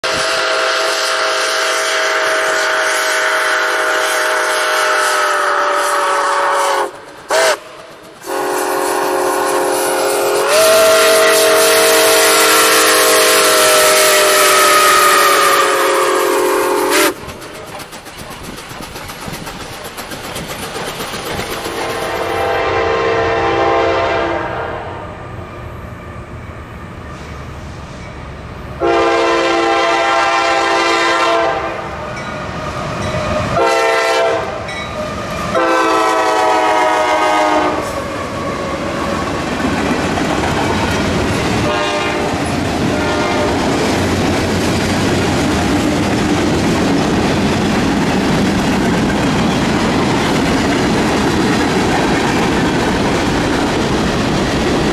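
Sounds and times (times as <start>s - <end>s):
diesel locomotive air horn: 0.0s - 17.2s, 21.7s - 25.6s, 28.8s - 32.2s, 33.4s - 38.8s, 41.6s - 43.8s
steam locomotive whistle: 0.0s - 17.3s, 21.6s - 25.6s, 28.8s - 39.2s, 41.6s - 43.9s
train rumble: 0.0s - 54.9s.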